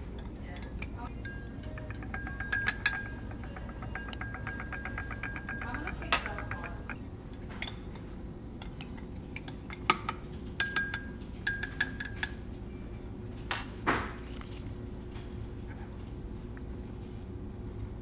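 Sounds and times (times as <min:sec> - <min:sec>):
stirring rod clinking against glass: 0:00.0 - 0:08.0, 0:10.6 - 0:13.0.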